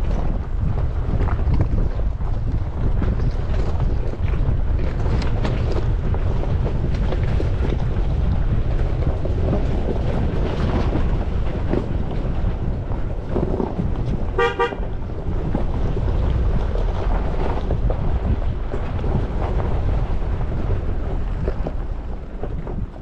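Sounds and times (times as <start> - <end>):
pickup truck driving over gravel: 0.0 - 23.0
wind buffeting microphone: 0.0 - 23.0
vehicle horn toot: 14.4 - 14.9.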